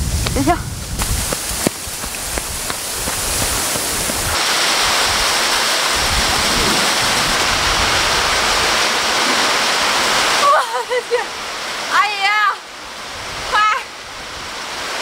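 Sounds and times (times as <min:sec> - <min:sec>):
heavy rain hissing: 0:00.0 - 0:15.0
footsteps running through grass: 0:00.8 - 0:04.4.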